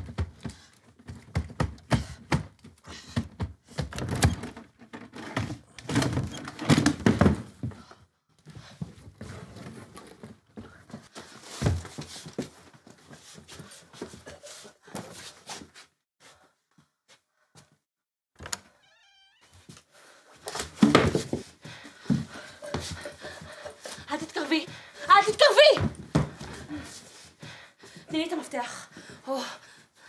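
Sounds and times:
knocks and clatter at wooden cabinet: 0:00.0 - 0:07.8.

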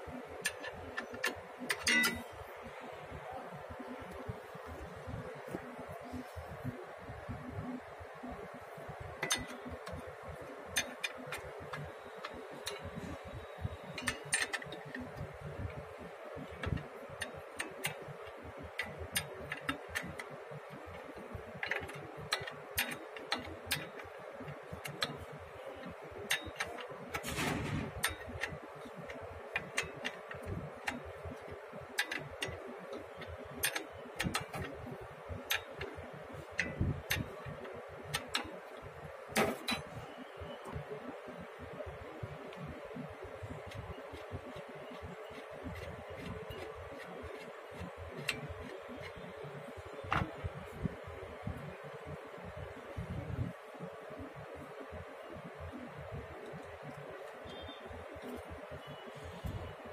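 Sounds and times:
spanner clicks and metallic taps: 0:00.0 - 0:02.5, 0:08.5 - 0:59.8
spanner rasp: 0:00.4 - 0:02.4, 0:43.6 - 0:49.8.

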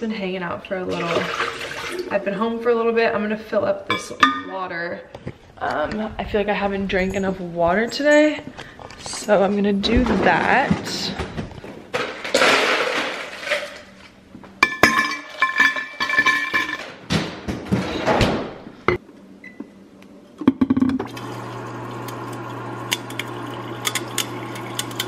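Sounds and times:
water dispenser running with hum: 0:20.9 - 0:25.0.

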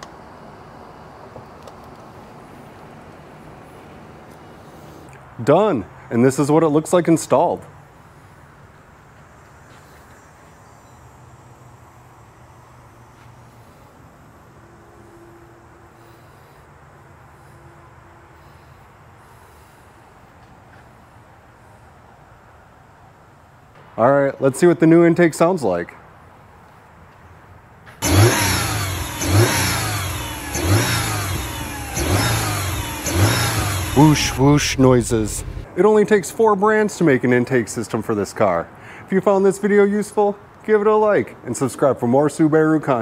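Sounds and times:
car engine throttle blips: 0:28.0 - 0:35.7
low hum: 0:28.6 - 0:35.8.

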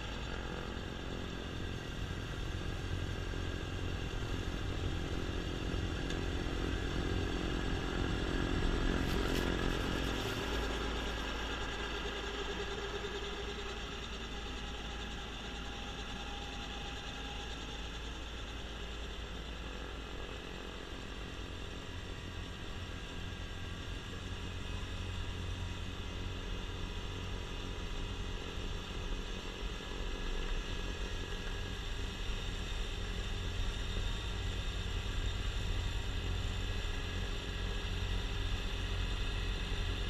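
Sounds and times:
snowblower spinning: 0:00.0 - 0:18.0
tractor diesel engine: 0:00.0 - 0:26.3.

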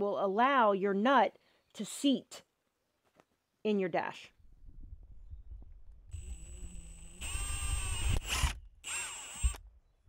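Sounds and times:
power drill whining: 0:06.1 - 0:09.7.

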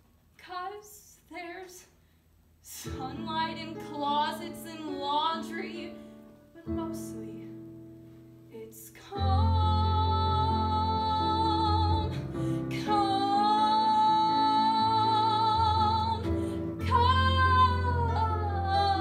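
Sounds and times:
woman singing with vibrato: 0:02.7 - 0:06.0, 0:06.6 - 0:07.5, 0:08.5 - 0:19.0
piano accompaniment: 0:09.1 - 0:19.0.

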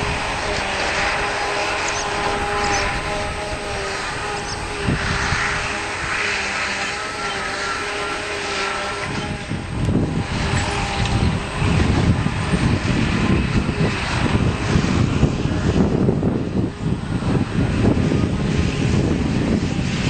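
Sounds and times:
diesel machinery drone: 0:00.0 - 0:20.0
machinery whine: 0:00.0 - 0:20.0.

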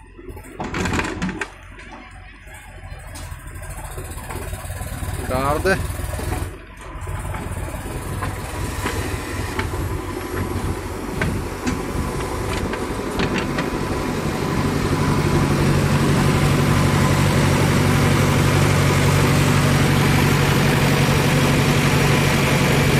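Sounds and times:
diesel engines running: 0:00.0 - 0:22.9
steady engine drone: 0:00.0 - 0:22.9
metal clanks and rattles: 0:00.2 - 0:05.2, 0:06.0 - 0:13.9.

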